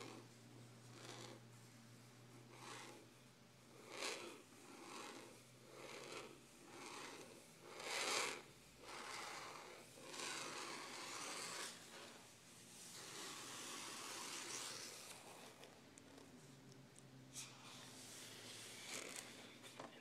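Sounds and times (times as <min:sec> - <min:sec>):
fingernails scratching paper: 0:00.9 - 0:01.4, 0:02.5 - 0:03.1, 0:03.7 - 0:12.2, 0:12.9 - 0:15.7, 0:18.0 - 0:19.5.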